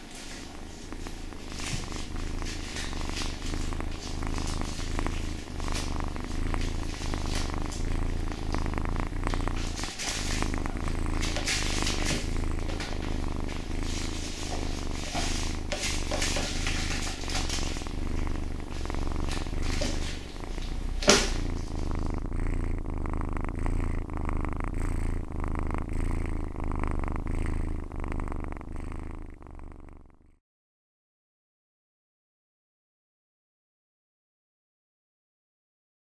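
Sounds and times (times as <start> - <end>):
cat purring: 0.0 - 30.4.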